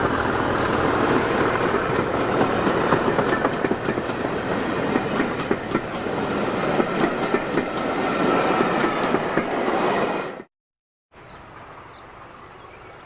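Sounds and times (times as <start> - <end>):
train wheels rumbling and clicking: 0.0 - 9.6.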